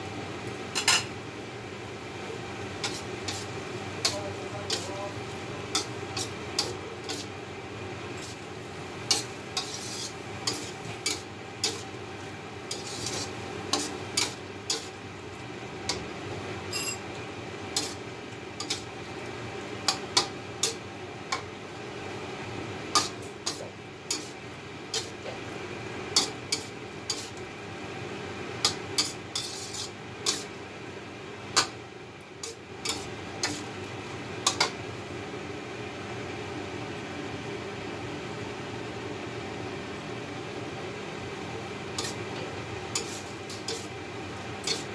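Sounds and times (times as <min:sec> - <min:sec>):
metal spatula scraping a wok: 0:02.8 - 0:03.4, 0:05.7 - 0:07.3, 0:09.1 - 0:11.9, 0:12.7 - 0:14.9, 0:17.8 - 0:18.0, 0:23.0 - 0:25.1, 0:26.2 - 0:27.4, 0:29.0 - 0:30.5, 0:32.4 - 0:33.7, 0:42.0 - 0:42.2, 0:42.9 - 0:43.9, 0:44.6 - 0:44.9.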